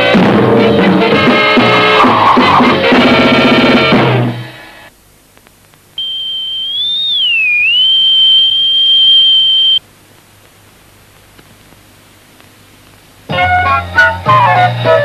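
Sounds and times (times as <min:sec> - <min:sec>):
high cartoon whistle tone: 0:06.0 - 0:09.8.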